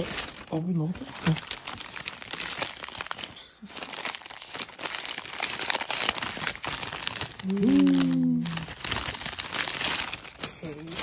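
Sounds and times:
plastic wrapper crinkling: 0.0s - 11.0s
person humming mm: 7.4s - 8.7s.

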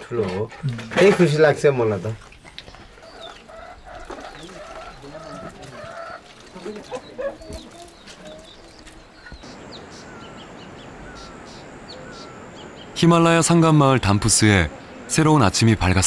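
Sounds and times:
outdoor hush: 0.0s - 16.0s
chickens clucking: 0.2s - 10.4s.

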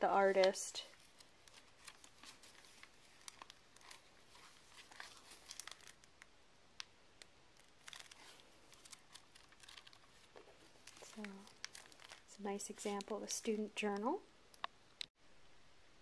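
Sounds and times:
paper pages rustling: 0.3s - 6.2s, 7.6s - 13.6s.

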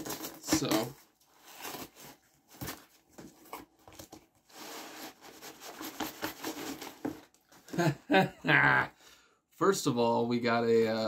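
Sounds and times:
package scraping and rustling: 0.0s - 7.8s.

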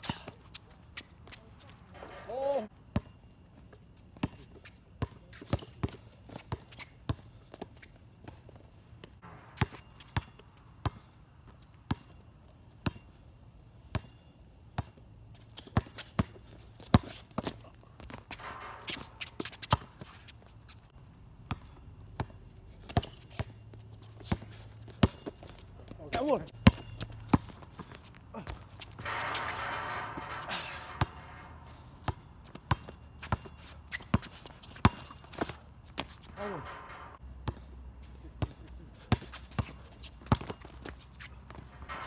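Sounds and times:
players' footsteps: 16.9s - 20.9s, 22.8s - 42.0s
basketball bouncing on hard court: 18.3s - 20.0s, 26.6s - 37.7s.

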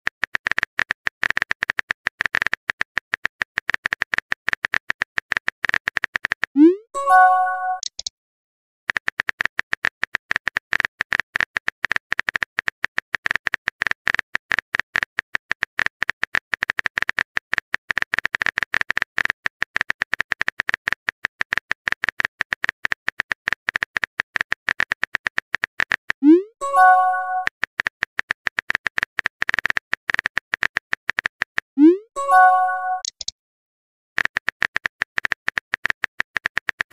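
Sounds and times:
phone keyboard typing clicks: 0.1s - 8.1s, 8.9s - 33.3s
message notification tone: 6.6s - 7.9s, 26.2s - 27.5s, 31.8s - 33.1s.

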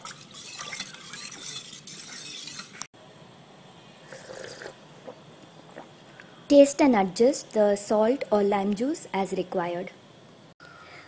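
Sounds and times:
ladle stirring liquid in bowl: 0.0s - 2.9s.

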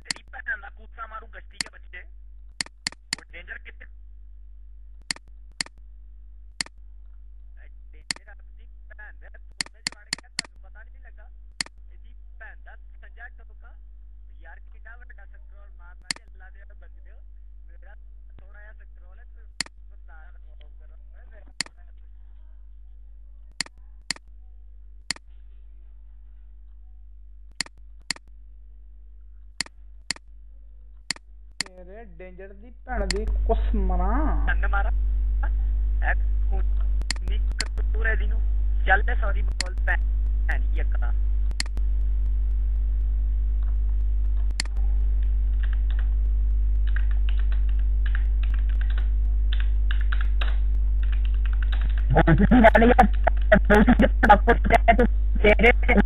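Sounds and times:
low electrical hum: 0.0s - 56.0s
sharp click: 2.5s - 3.3s, 5.0s - 5.8s, 9.6s - 10.6s, 16.1s - 16.3s, 23.6s - 24.2s, 27.5s - 28.3s, 37.0s - 37.8s, 39.5s - 39.8s, 41.5s - 41.8s, 43.7s - 44.8s
computer mouse clicks: 2.6s - 3.2s, 41.5s - 41.8s.

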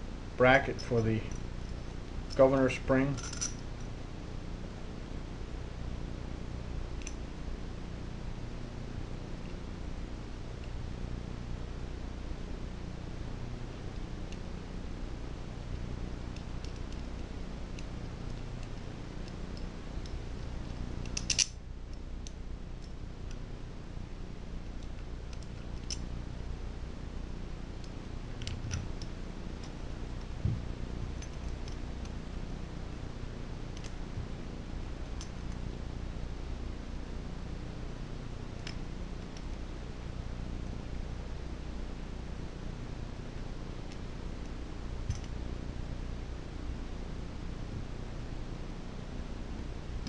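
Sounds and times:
steady low hum: 0.0s - 50.0s
small metal parts clicking: 3.1s - 3.6s, 20.4s - 21.5s.

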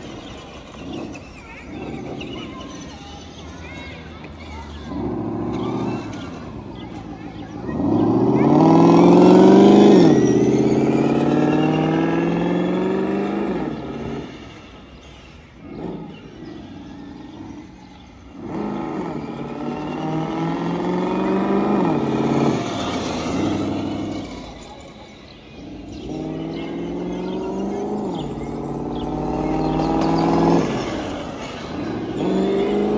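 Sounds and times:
simulated engine revving from speaker: 4.7s - 32.9s.

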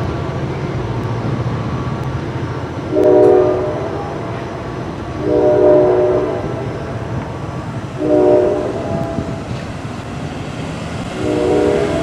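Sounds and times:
traffic noise: 0.0s - 12.0s
ambulance air horn blasts: 2.9s - 4.2s, 5.2s - 6.7s, 8.0s - 9.3s, 11.2s - 12.0s.

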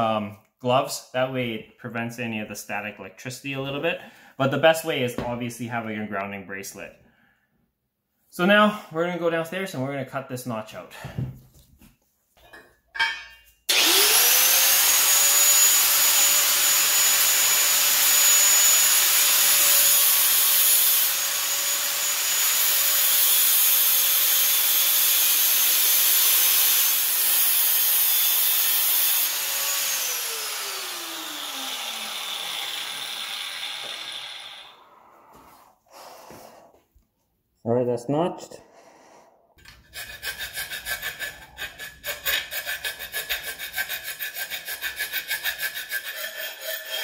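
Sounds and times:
grinder disc cutting metal: 13.0s - 34.8s, 40.1s - 47.0s
angle grinder whining: 13.7s - 35.1s.

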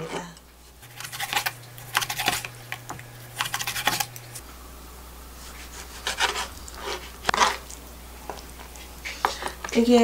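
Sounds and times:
knife cutting on plastic board: 0.8s - 4.4s, 5.8s - 7.6s
meat rubbing on board: 0.8s - 4.4s, 5.4s - 7.6s.

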